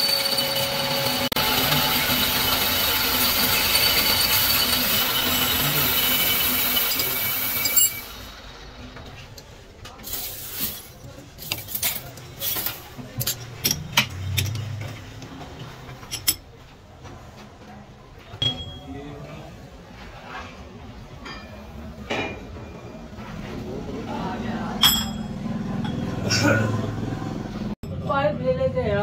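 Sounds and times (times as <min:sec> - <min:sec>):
lathe cutting steel hiss: 0:00.0 - 0:08.4
metallic clinks and knocks: 0:18.4 - 0:18.9, 0:24.8 - 0:26.1.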